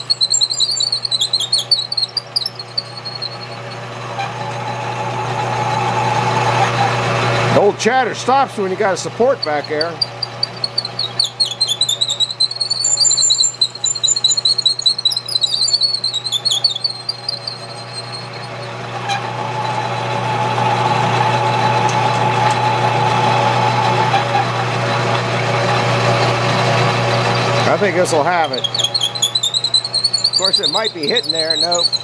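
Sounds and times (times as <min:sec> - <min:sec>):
high wavering drill squeal: 0:00.0 - 0:04.5, 0:05.4 - 0:07.5, 0:09.2 - 0:21.9, 0:27.0 - 0:32.0
metal lathe running: 0:00.0 - 0:32.0.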